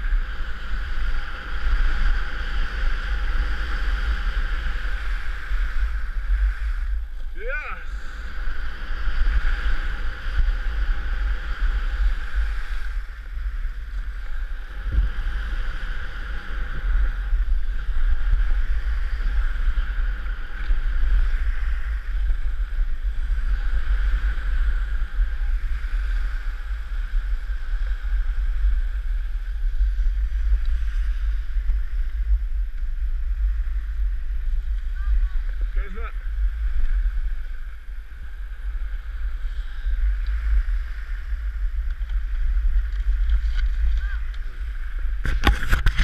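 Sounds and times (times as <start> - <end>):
skis sliding over snow: 0.0 - 46.0
wind buffeting microphone: 0.0 - 46.0.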